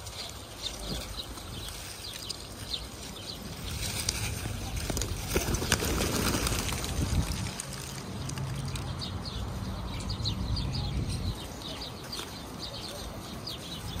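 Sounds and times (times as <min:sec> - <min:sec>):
pigeon wings flapping: 0:03.6 - 0:08.8.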